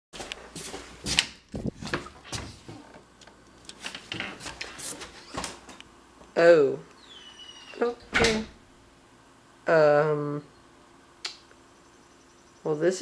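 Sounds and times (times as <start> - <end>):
door knocks clicks and rattles: 8.1 - 8.5.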